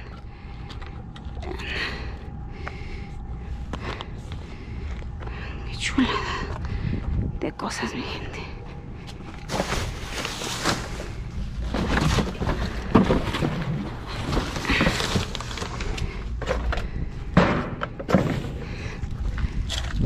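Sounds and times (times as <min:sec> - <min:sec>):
cardboard and plastic bags rustling: 0:09.0 - 0:16.9.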